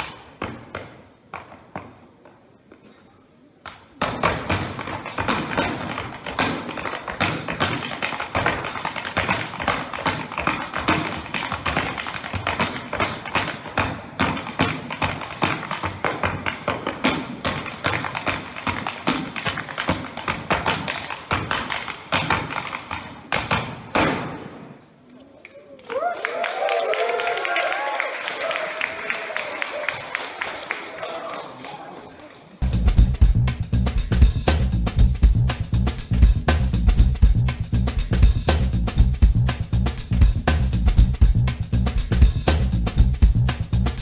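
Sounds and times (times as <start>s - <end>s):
music with percussive beat: 32.6s - 44.0s.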